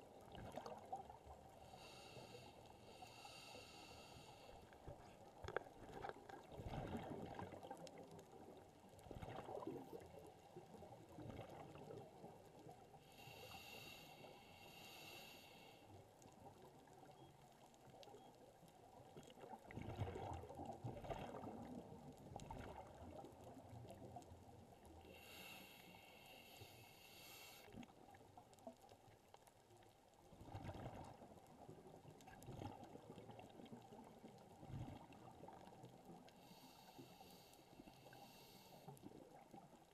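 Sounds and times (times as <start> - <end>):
exhaled bubbles underwater: 0.0 - 1.6, 5.0 - 12.8, 19.0 - 24.8, 30.3 - 36.3
diver inhaling through regulator: 1.6 - 4.7, 13.0 - 15.9, 25.1 - 27.8, 36.4 - 39.0.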